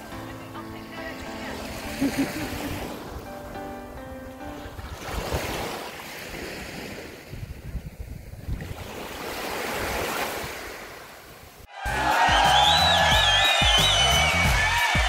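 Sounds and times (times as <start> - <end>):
wind buffeting microphone: 4.6 - 11.0.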